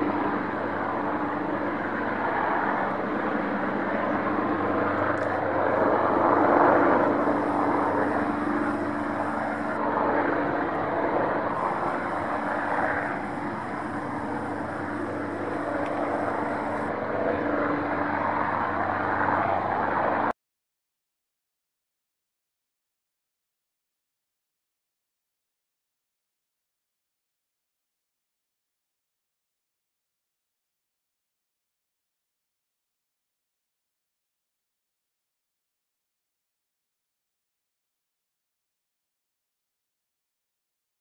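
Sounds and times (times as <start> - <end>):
helicopter rotor and turbine drone: 0.0 - 20.4.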